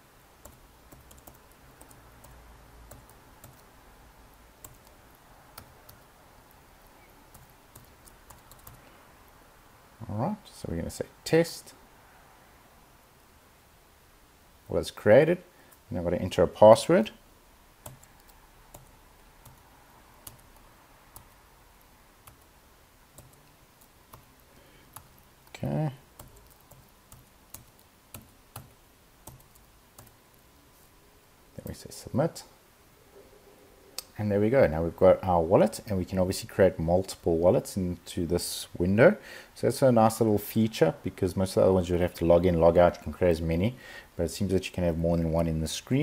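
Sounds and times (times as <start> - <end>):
computer keyboard keystrokes: 0.4 - 3.7, 4.6 - 5.0, 7.3 - 8.8, 17.8 - 19.6, 20.2 - 20.6, 23.2 - 25.3, 26.2 - 30.2.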